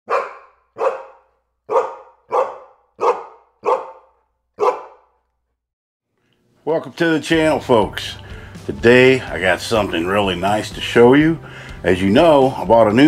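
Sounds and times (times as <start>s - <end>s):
dog barking: 0.1s - 5.2s.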